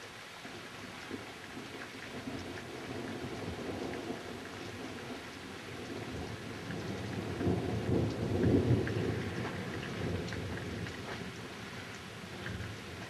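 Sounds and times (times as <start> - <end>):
steady rain: 0.0 - 13.0
thunder rumbling: 6.0 - 11.0.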